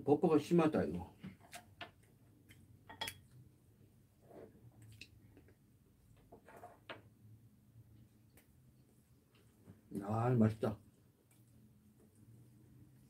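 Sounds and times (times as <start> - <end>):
soft chewing: 4.2 - 5.6, 10.9 - 13.0.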